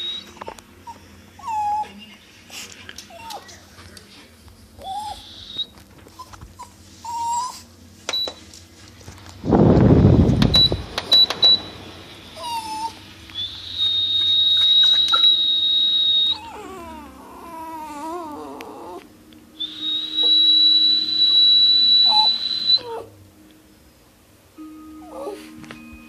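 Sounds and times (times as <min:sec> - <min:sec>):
dog whining howl: 0:04.8 - 0:06.3, 0:12.4 - 0:23.1, 0:25.0 - 0:25.6.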